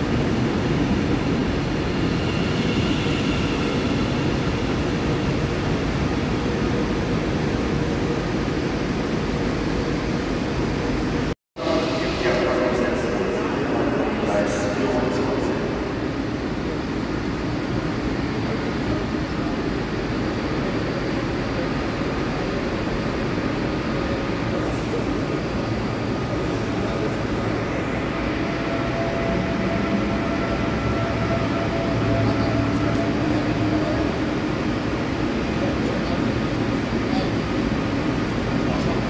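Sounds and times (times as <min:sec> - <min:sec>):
faint train whine: 0:00.0 - 0:39.0
electric train rolling to a stop: 0:00.1 - 0:10.8, 0:24.5 - 0:37.0.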